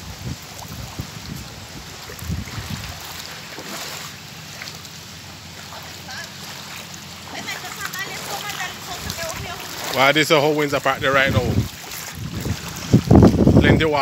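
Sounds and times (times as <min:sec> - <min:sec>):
wind buffeting microphone: 0:00.0 - 0:03.6, 0:07.4 - 0:14.0
floodwater rushing: 0:00.0 - 0:14.0.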